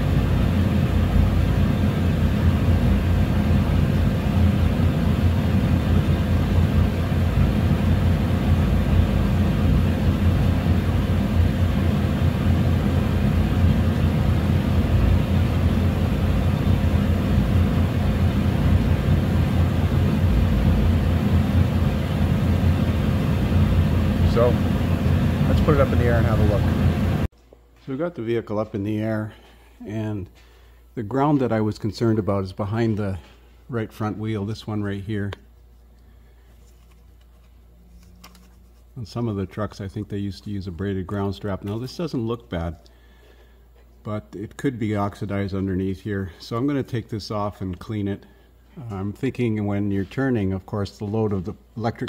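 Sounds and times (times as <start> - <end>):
furnace low drone: 0.0 - 27.3
faint steady hum: 0.0 - 52.0.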